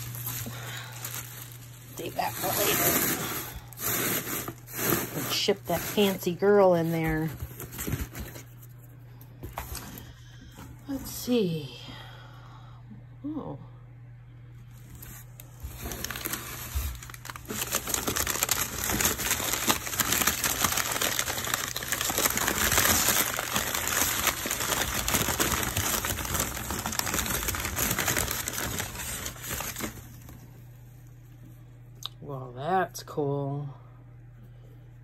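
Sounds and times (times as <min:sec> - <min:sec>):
packing paper crinkling: 0:00.0 - 0:08.8, 0:14.8 - 0:30.5.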